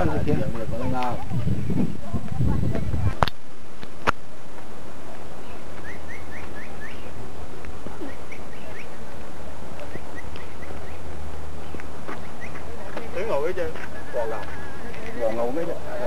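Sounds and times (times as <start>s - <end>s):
steady low hum: 0.0s - 16.0s
bird chirping: 5.2s - 16.0s.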